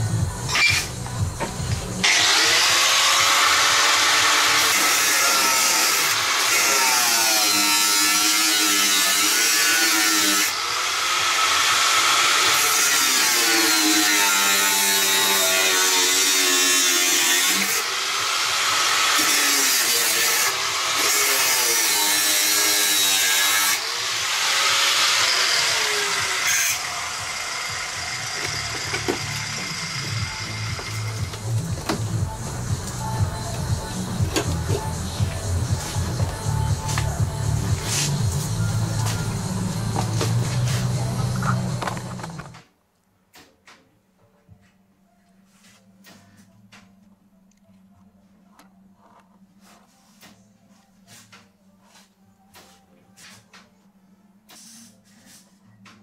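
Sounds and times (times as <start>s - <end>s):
angle grinder cutting sheet metal: 2.0s - 42.5s.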